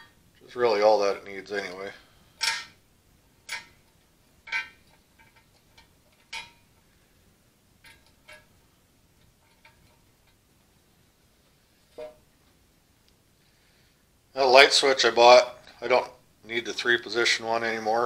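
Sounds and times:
small metal clicks: 3.4 - 6.8, 7.8 - 8.5.

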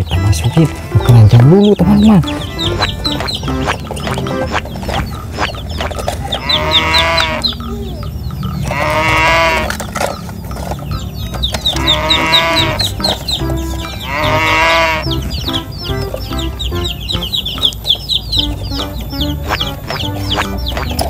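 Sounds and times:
background music with steady beat: 0.0 - 7.8, 10.9 - 21.0
farm animal call: 0.0 - 21.0.

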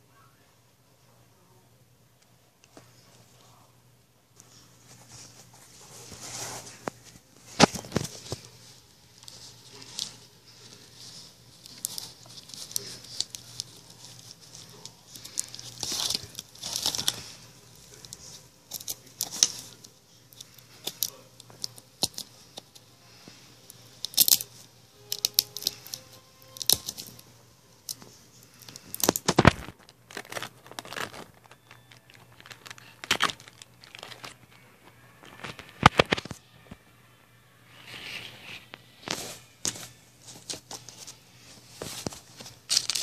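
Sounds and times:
plastic and paper crinkling: 4.4 - 36.8, 37.8 - 43.0.

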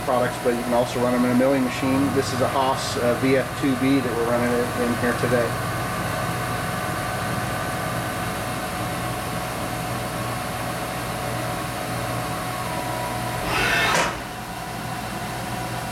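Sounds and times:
milling machine hum: 12.6 - 14.9
rising machine whine: 13.4 - 14.4.

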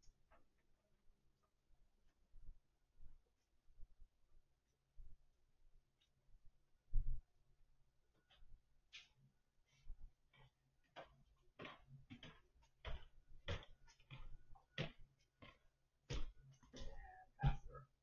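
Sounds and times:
footsteps on hardwood floor: 10.3 - 17.8.

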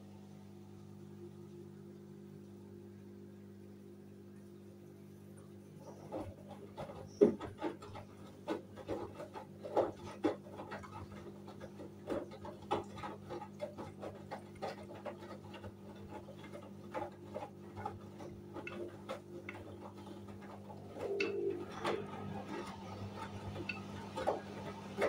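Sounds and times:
washing machine motor hum: 0.0 - 25.0
laundry splashing and thudding: 6.0 - 25.0.

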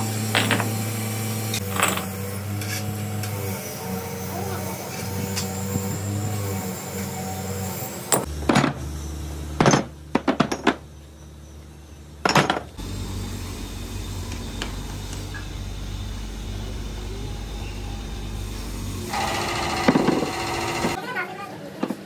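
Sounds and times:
steady low hum: 10.9 - 21.0.

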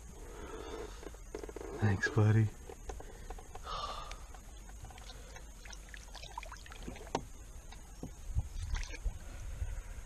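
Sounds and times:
water splashing and dripping: 4.9 - 7.2, 8.4 - 9.1.

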